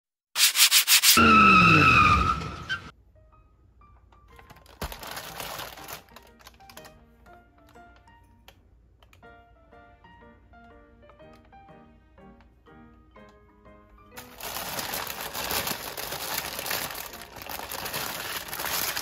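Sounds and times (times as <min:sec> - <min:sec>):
tyre squeal: 0:00.9 - 0:02.9
soft background music: 0:02.9 - 0:19.0.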